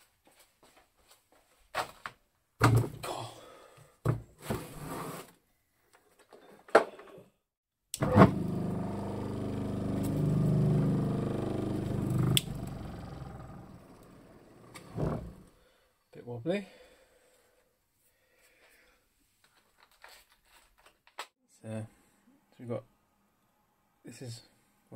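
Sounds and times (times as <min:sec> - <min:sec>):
motor rotor spinning hum: 0:08.0 - 0:15.5.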